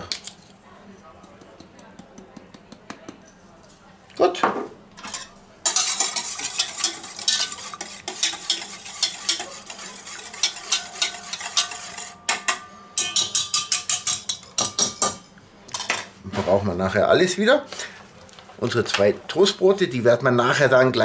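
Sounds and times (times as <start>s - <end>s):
whisk beating in metal bowl: 5.1s - 15.1s.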